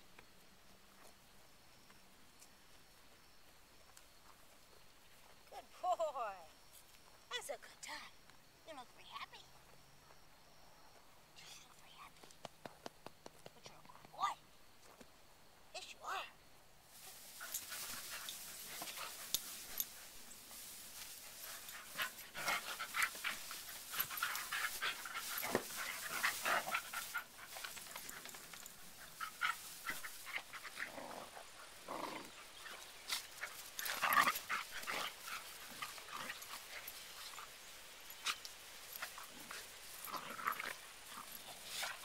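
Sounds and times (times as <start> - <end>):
rustling in hay: 16.9 - 42.0
puppies panting: 17.3 - 42.0
puppies growling: 21.4 - 36.8.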